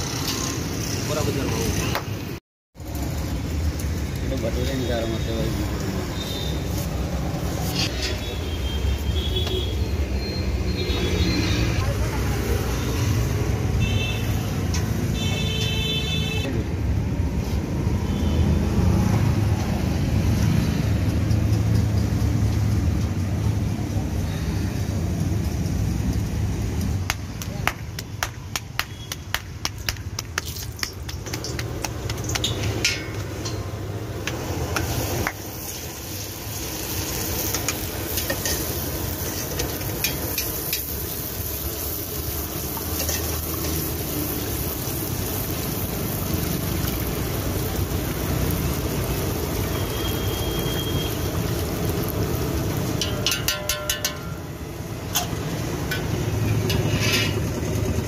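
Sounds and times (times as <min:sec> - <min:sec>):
dough deep-frying in oil: 0:02.8 - 0:58.0
metal utensils clinking: 0:32.2 - 0:33.8, 0:37.4 - 0:40.9, 0:42.9 - 0:43.9, 0:52.9 - 0:54.5, 0:55.1 - 0:57.4.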